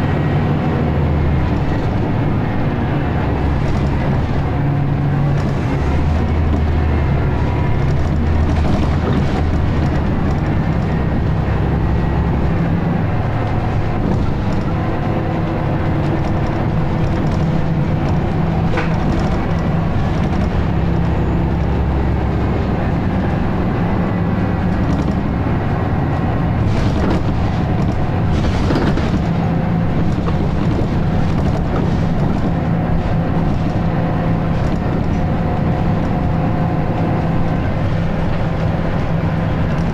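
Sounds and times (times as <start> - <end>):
bus diesel engine running: 0.0 - 39.9
knocks and rattles: 3.3 - 12.1, 13.2 - 21.1, 26.4 - 39.9.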